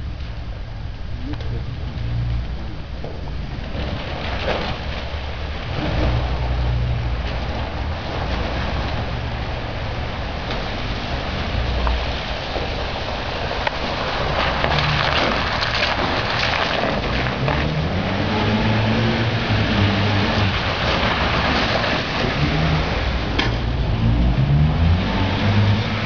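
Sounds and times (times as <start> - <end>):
off-road vehicle engines: 0.0 - 26.0
tyres splashing through water: 1.6 - 26.0
tyres crunching on stones: 11.8 - 18.0.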